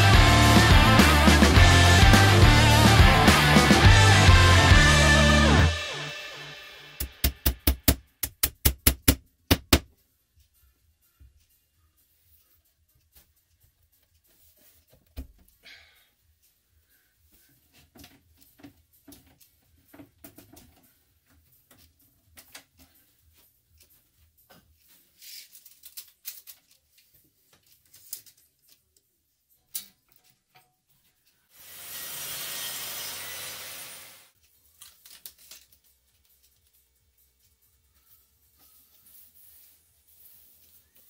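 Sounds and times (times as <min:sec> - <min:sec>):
loud hiss-like noise: 0:31.6 - 0:34.3.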